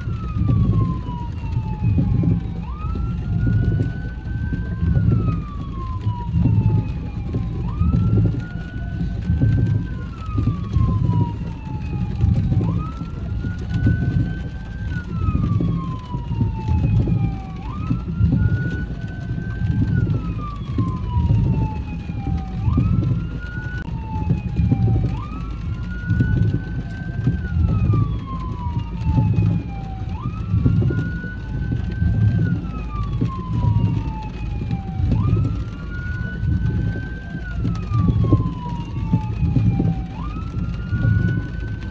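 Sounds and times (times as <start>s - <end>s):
emergency siren wailing: 0.0s - 41.9s
road and engine rumble: 0.0s - 41.9s.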